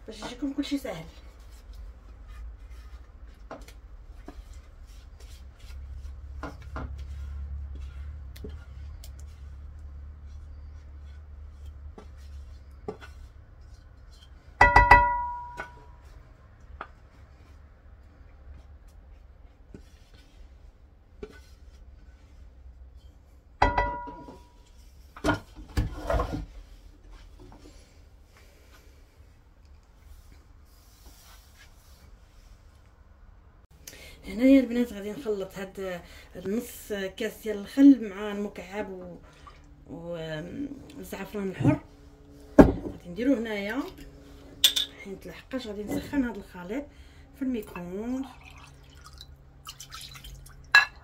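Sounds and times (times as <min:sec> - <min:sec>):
low steady hum: 0:00.0 - 0:51.0
dish set down with ringing clang: 0:14.6 - 0:15.8, 0:23.6 - 0:24.4
dishes and utensils clattering: 0:23.6 - 0:24.5, 0:44.6 - 0:45.0.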